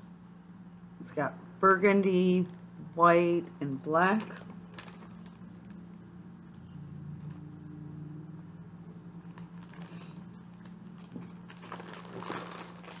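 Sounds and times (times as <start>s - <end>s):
steady low hum: 0.0s - 13.0s
yarn packaging rustling: 4.1s - 5.8s, 9.2s - 13.0s.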